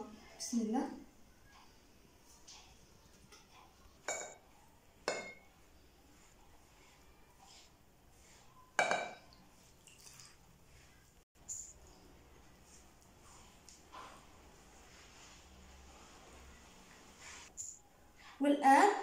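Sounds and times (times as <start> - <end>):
glass bowl clinking: 4.0 - 4.4, 5.0 - 5.5, 8.7 - 10.2.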